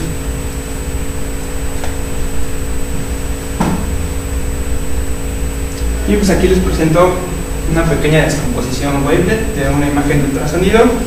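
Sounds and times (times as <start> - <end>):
low room hum: 0.0 - 11.0
short knock: 3.6 - 4.0.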